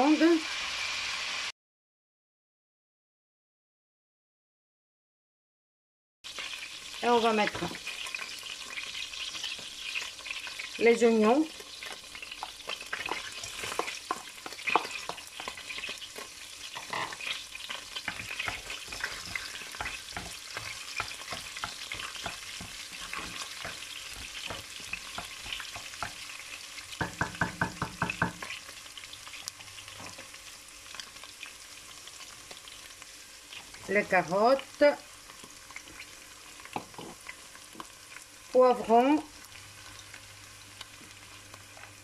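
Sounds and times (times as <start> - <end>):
onions sizzling in hot oil: 0.0 - 1.5, 6.2 - 42.0
spatula stirring: 7.4 - 10.8, 11.5 - 30.4.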